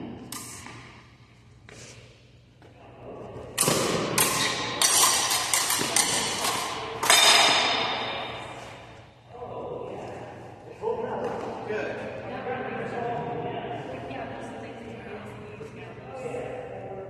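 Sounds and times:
rapier blades clashing: 0:03.6 - 0:08.8
metallic ring: 0:04.4 - 0:08.9.

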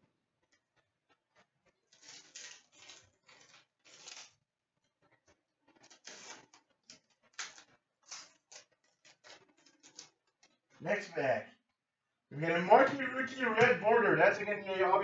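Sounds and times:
trading cards rustling: 0:01.9 - 0:04.3, 0:05.8 - 0:10.2.

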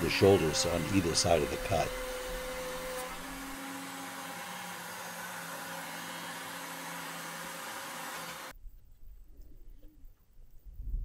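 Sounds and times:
router motor cutting wood: 0:00.0 - 0:08.5.

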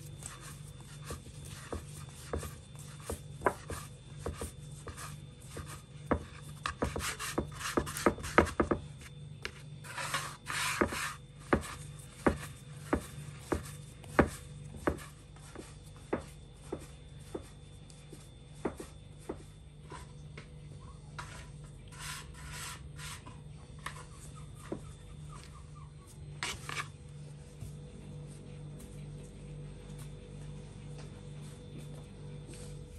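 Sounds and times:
hands rubbing dough on board: 0:00.0 - 0:20.1.

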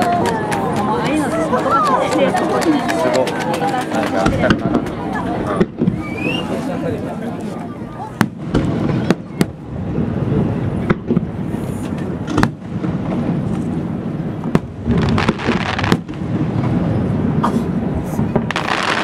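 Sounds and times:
firework shells bursting: 0:18.4 - 0:19.0.

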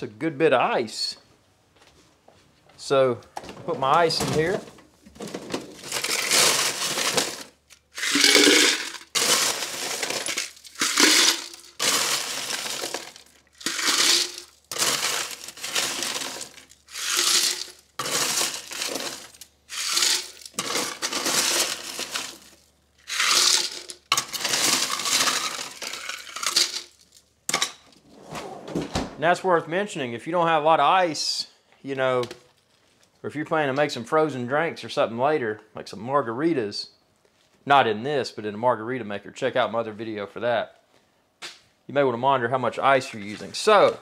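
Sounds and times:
ice cubes rattling in plastic pitcher: 0:05.2 - 0:27.2.

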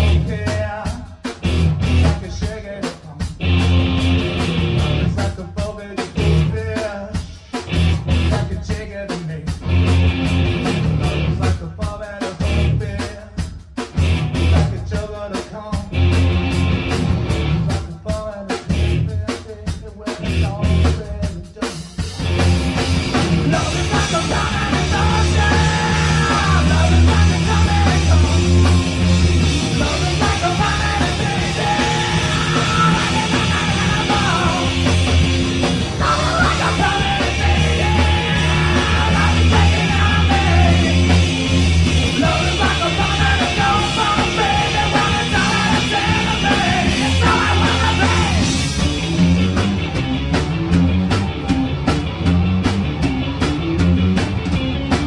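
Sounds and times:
live rock band playing: 0:00.0 - 0:55.0
person singing: 0:23.4 - 0:28.9, 0:29.6 - 0:34.9, 0:36.0 - 0:41.2, 0:42.1 - 0:48.5.

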